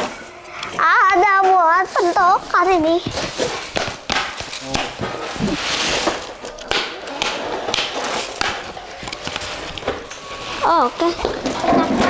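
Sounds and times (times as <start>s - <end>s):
plastic wrapping rustling: 1.6s - 6.6s.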